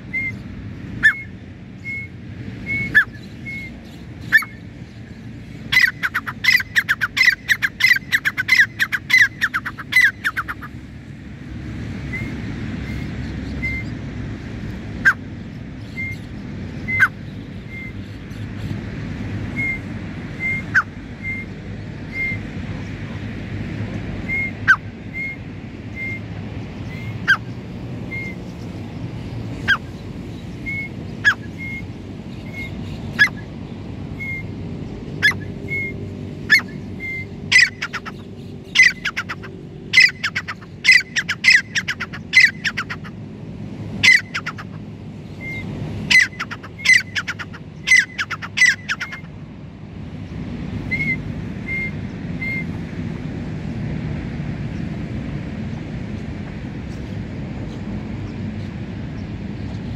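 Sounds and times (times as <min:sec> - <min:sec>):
francolin calling: 0:05.5 - 0:10.8, 0:19.5 - 0:22.5, 0:36.5 - 0:43.2, 0:44.0 - 0:49.4, 0:50.8 - 0:52.7.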